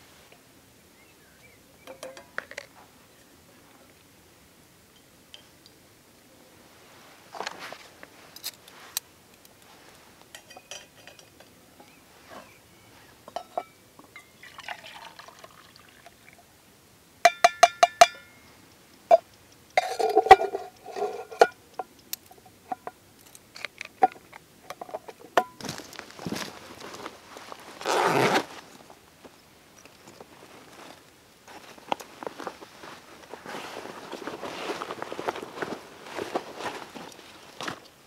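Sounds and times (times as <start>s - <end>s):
ringing metal clinks: 13.4s - 14.4s, 17.3s - 18.5s
water poured into metal mug: 14.4s - 16.4s.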